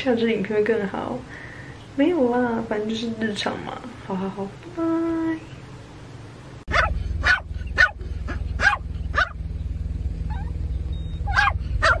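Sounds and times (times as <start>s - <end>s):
steady low rumble: 5.9s - 12.0s
dog barking: 6.7s - 9.4s, 11.2s - 12.0s.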